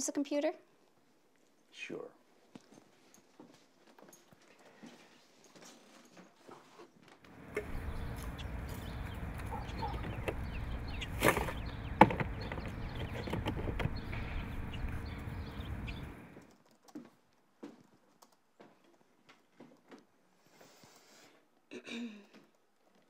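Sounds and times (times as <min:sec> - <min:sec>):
outdoor background noise: 0:00.0 - 0:23.0.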